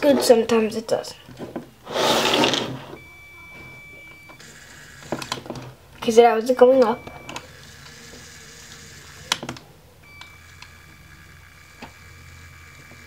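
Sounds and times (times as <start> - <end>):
faint motor and gears whirring: 2.7 - 13.0.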